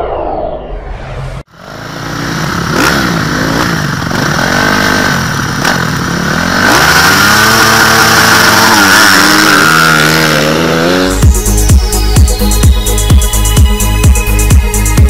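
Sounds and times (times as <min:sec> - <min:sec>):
dirt bike engines revving: 0:01.6 - 0:11.6.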